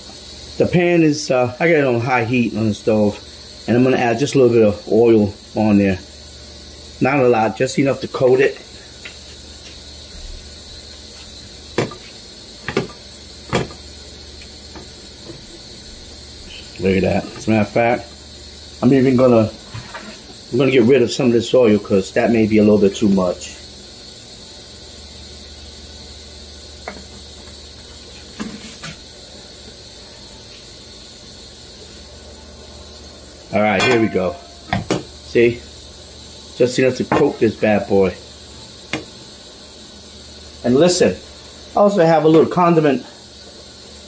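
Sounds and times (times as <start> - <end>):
faint steady hiss: 0.0 - 44.0
frying pan knocking on stove: 11.8 - 12.0, 12.6 - 13.8, 33.8 - 35.1.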